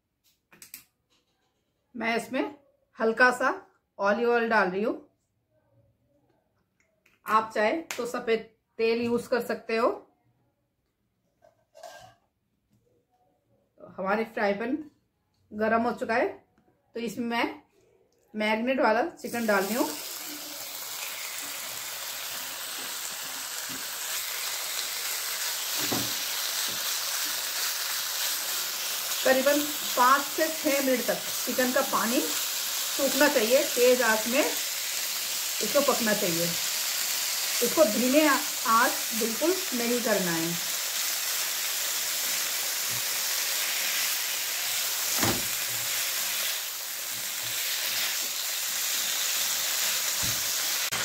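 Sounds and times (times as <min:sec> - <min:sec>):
chicken sizzling in hot oil: 0:19.2 - 0:51.0.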